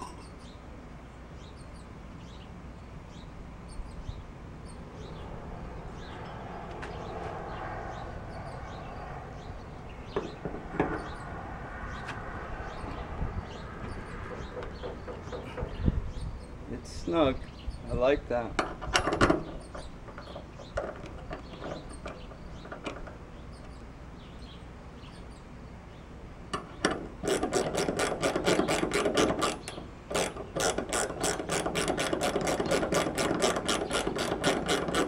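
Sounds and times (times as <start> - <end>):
ratchet wrench clicking: 27.2 - 35.0.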